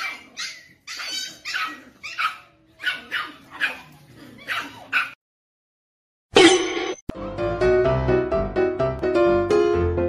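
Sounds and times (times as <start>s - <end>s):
dog barking in high-pitched yaps: 0.0s - 5.2s.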